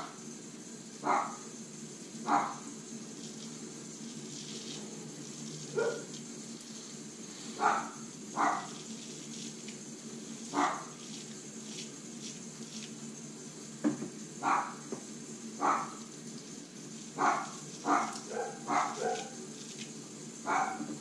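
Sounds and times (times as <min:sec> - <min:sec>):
dog barking: 0:01.0 - 0:01.4, 0:02.3 - 0:02.7, 0:05.7 - 0:06.1, 0:07.6 - 0:08.8, 0:10.5 - 0:10.9, 0:14.4 - 0:14.8, 0:15.6 - 0:16.0, 0:17.2 - 0:19.4, 0:20.4 - 0:20.9.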